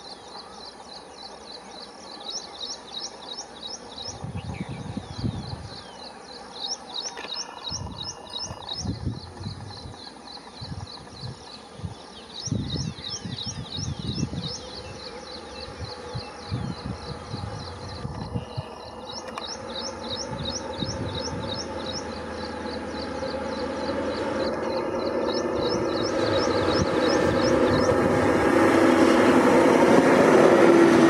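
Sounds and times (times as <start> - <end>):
rapid high rising chirps: 12.3 - 31.0
diesel train engine approaching: 18.5 - 31.0.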